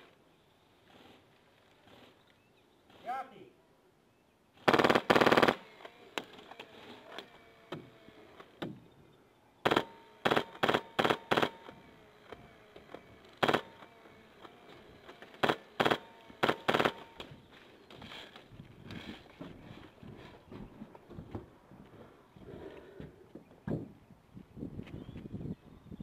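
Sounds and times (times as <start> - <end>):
airsoft rifle automatic bursts: 4.6 - 6.1, 9.6 - 11.8, 13.4 - 13.9, 15.4 - 17.2.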